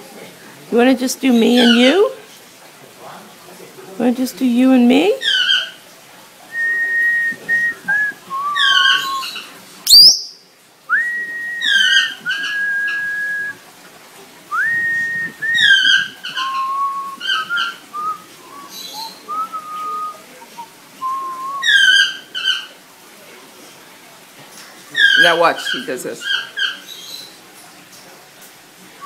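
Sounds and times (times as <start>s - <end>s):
raspy parrot calls: 8.6s - 10.4s, 11.6s - 13.0s
person whistling a tune: 14.5s - 15.8s, 19.3s - 20.2s, 21.0s - 21.6s.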